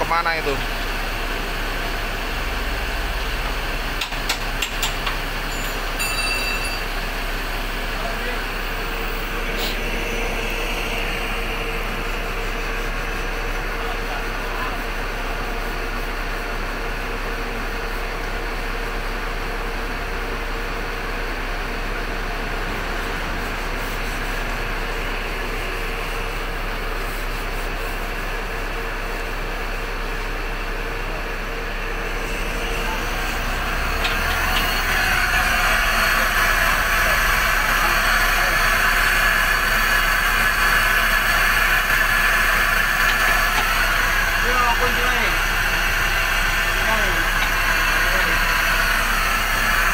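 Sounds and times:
mechanical running noise: 21.4s - 49.9s.

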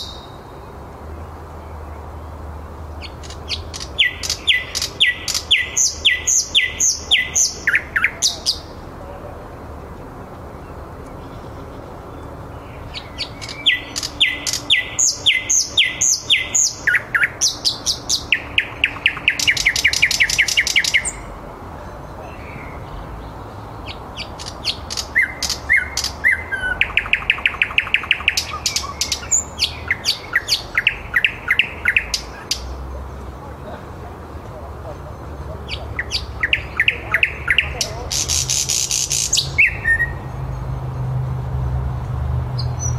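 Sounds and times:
nightingale singing: 0.0s - 41.0s, 42.6s - 42.9s.

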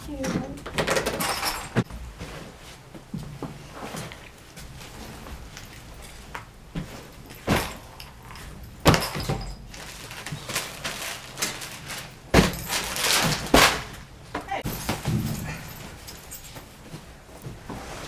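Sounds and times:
fabric rustling: 9.6s - 13.6s
plastic crinkling: 9.7s - 13.7s.

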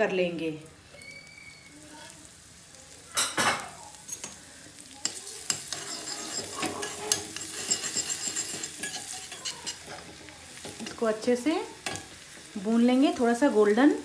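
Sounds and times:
garlic sizzling in hot fat: 0.0s - 14.0s
steel spoon scraping a pan: 4.0s - 13.2s.

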